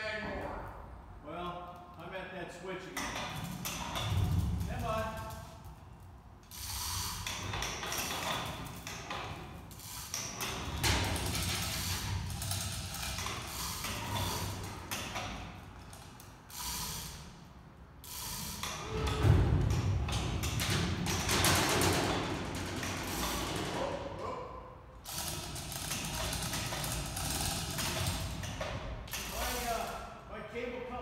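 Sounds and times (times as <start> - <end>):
hoist chain rattling and clicking: 25.0 - 30.0.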